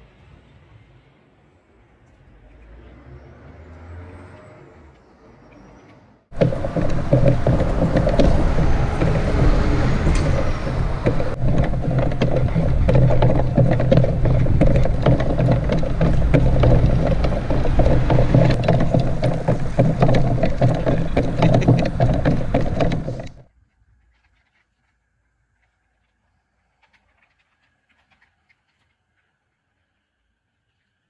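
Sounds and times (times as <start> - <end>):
drive motor hum: 6.3 - 23.4
wooden clicks and knocks: 6.3 - 23.4.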